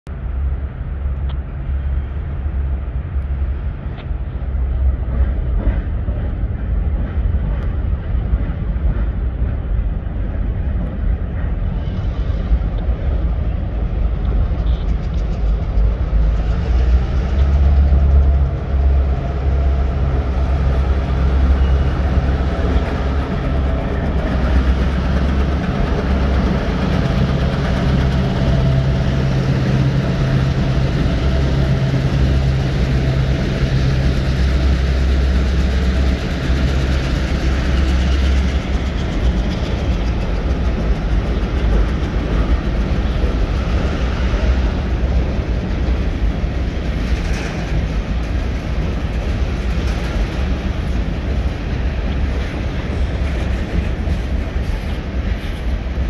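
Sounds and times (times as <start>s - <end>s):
diesel locomotive engine rumble: 0.0s - 56.0s.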